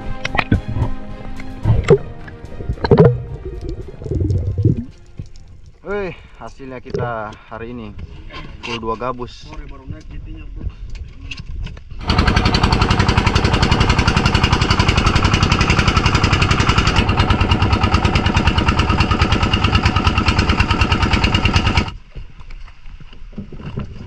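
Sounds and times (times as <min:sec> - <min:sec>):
small boat engine running: 0:12.0 - 0:22.1.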